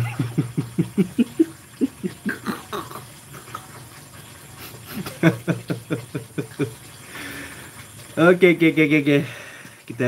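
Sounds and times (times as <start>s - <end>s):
man laughing: 0.0s - 3.7s, 4.6s - 6.8s.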